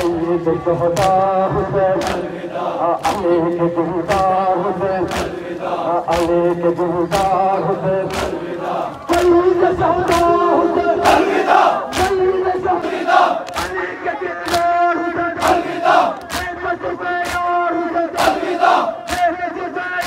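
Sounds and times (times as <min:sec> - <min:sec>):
crowd of men chanting: 0:00.0 - 0:20.0.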